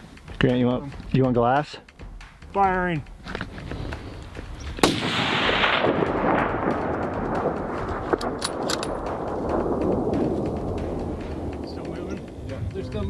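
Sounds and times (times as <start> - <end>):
rifle shot echoing: 4.8 - 11.6.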